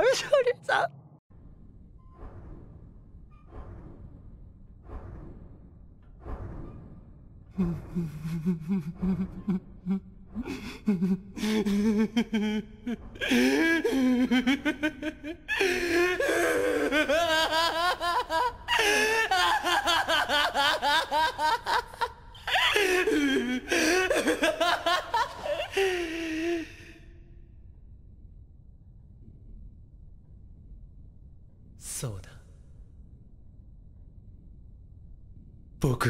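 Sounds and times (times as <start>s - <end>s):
man laughing maniacally: 7.6s - 27.0s.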